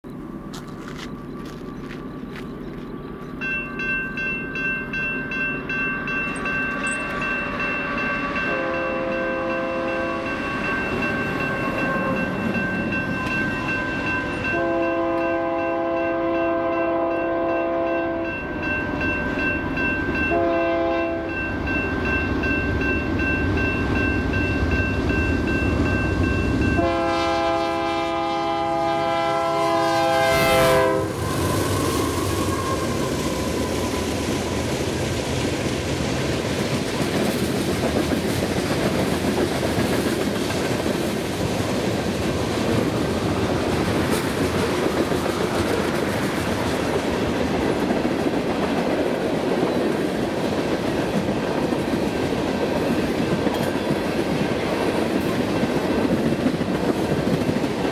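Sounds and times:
train engines and cars rumbling: 0:00.0 - 0:57.9
railroad crossing bell ringing: 0:01.2 - 0:31.3
train horn blasts: 0:06.6 - 0:10.5, 0:14.4 - 0:18.4, 0:20.3 - 0:21.4, 0:26.6 - 0:33.1.

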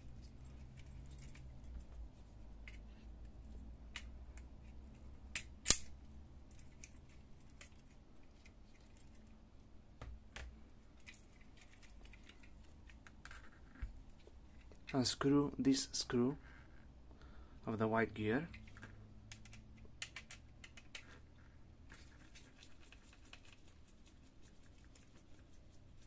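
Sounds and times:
sharp plastic snap: 0:05.4 - 0:05.9.

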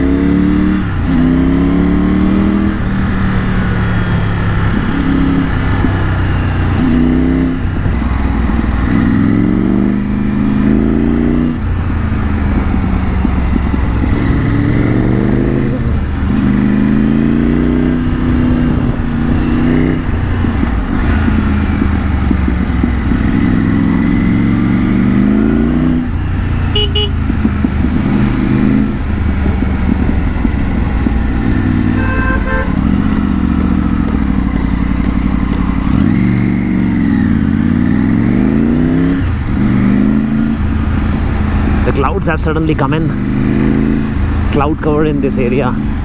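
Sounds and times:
motorcycle engine revving: 0:00.0 - 0:46.0
vehicle horn beeping: 0:26.7 - 0:27.2, 0:31.9 - 0:32.8.

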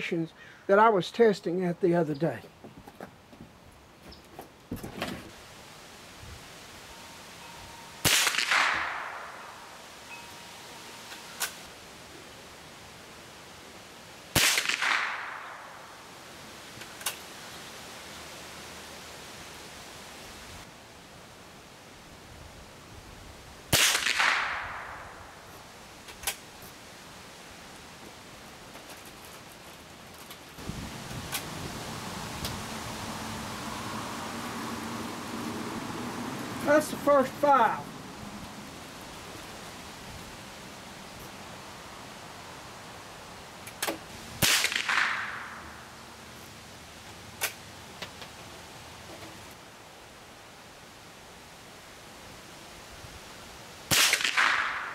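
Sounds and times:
gunshot with echo: 0:08.0 - 0:09.5, 0:14.4 - 0:15.6, 0:23.7 - 0:25.0, 0:44.4 - 0:45.6, 0:53.9 - 0:54.9.

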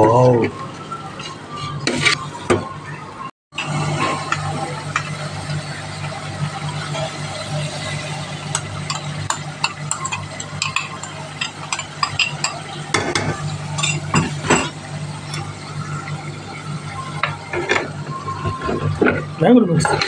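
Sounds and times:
food frying: 0:03.6 - 0:20.0.

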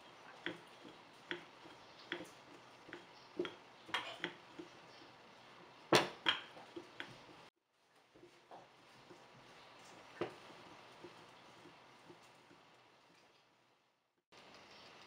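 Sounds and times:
rolling pin knocking over dough: 0:05.9 - 0:07.2.

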